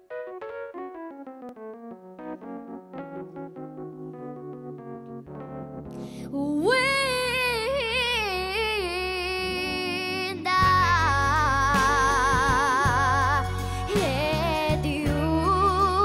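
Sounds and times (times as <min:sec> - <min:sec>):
girl singing a soul ballad: 0:06.0 - 0:16.0
backing music with bass: 0:10.3 - 0:16.0.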